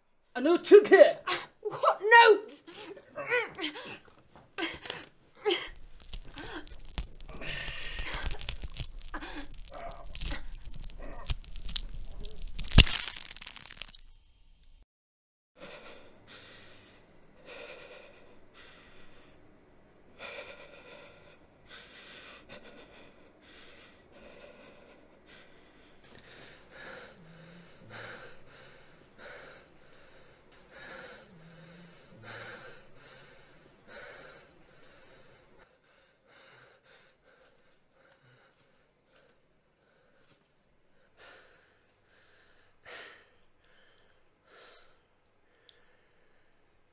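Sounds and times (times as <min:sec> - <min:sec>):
man breathing heavily: 0:15.6 - 0:19.3, 0:20.2 - 0:46.6.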